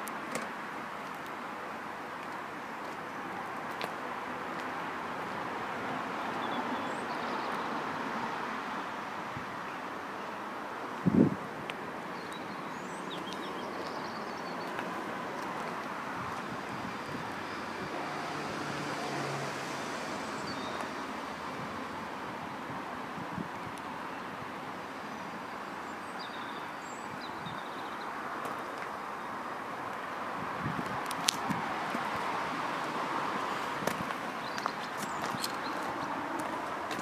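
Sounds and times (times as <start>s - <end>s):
wind on microphone: 11.0s - 11.6s, 21.4s - 23.8s, 30.3s - 32.7s.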